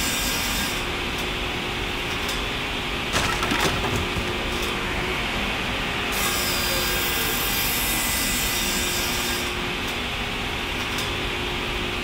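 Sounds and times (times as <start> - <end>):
mill machinery noise: 2.0 - 7.8.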